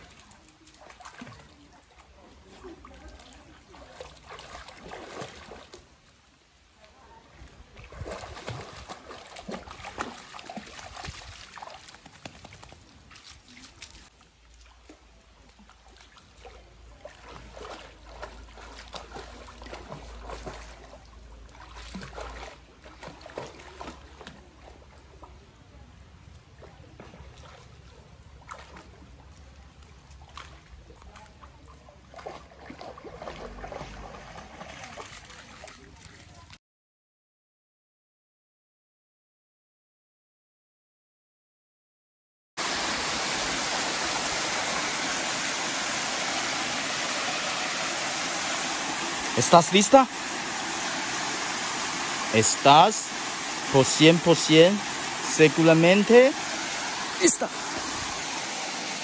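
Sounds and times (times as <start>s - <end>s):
dog splashing through water: 0.0s - 5.9s, 7.0s - 25.5s, 26.4s - 36.6s, 42.6s - 59.0s.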